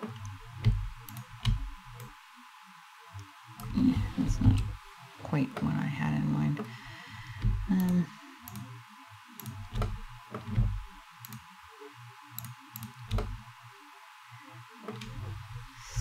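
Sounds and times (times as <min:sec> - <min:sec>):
mouse and keyboard clicks: 0:12.4 - 0:13.4.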